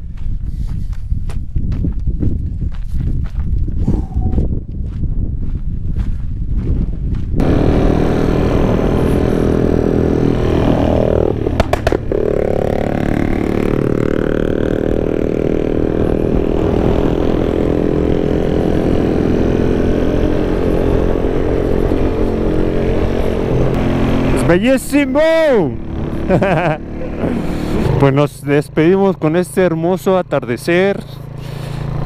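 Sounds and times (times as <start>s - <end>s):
footsteps on dirt: 0.0s - 8.0s
motorcycle engine running: 3.6s - 32.0s
sharp clicks: 11.5s - 12.1s.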